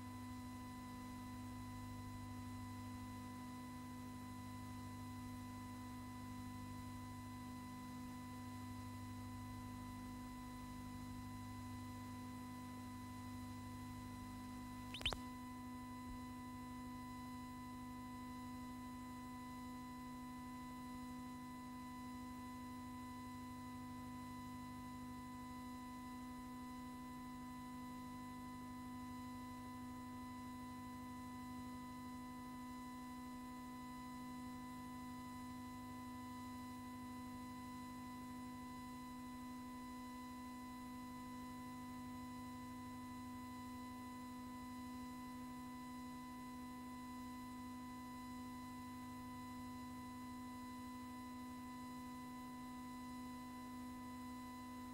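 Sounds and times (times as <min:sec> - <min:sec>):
steady electrical hum: 0:14.9 - 0:15.2.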